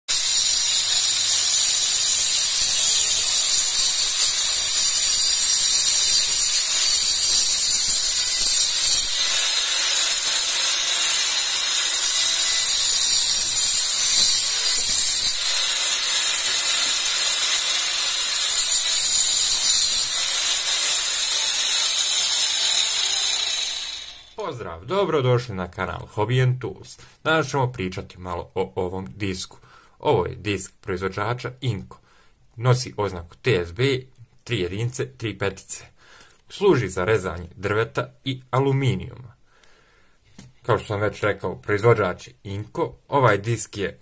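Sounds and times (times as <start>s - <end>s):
angle grinder cutting wood: 0.1s - 24.8s.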